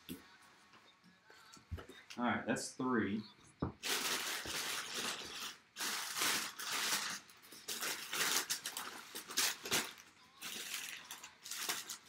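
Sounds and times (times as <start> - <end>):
packing paper crumpling and rustling: 3.8 - 12.0.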